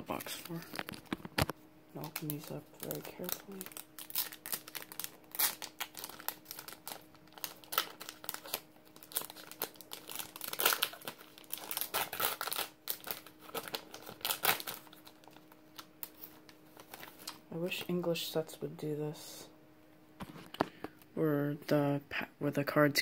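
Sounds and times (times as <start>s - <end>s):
packaging crinkling: 0.0s - 17.9s.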